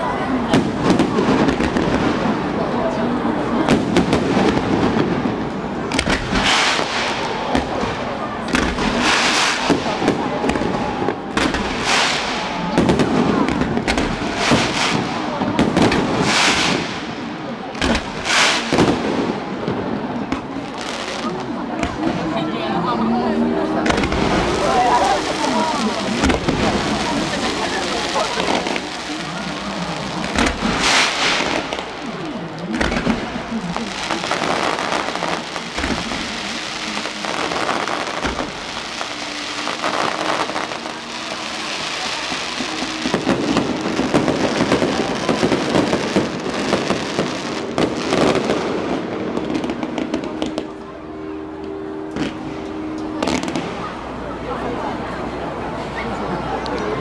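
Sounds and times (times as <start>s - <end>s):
fireworks bursting with sharp bangs: 0.0s - 54.2s
crackling hiss of fireworks: 0.0s - 57.0s
low firework booms: 23.8s - 32.1s.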